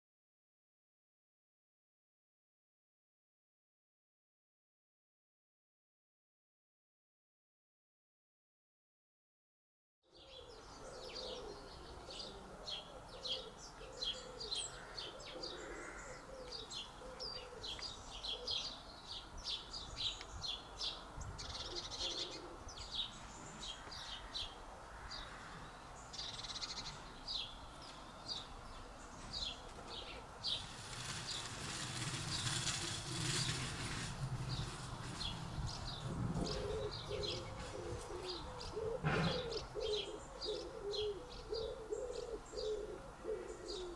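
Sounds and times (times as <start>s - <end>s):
low cooing calls: 10.1s - 19.7s, 20.5s - 33.8s, 34.6s - 43.9s
birds chirping: 10.1s - 43.9s.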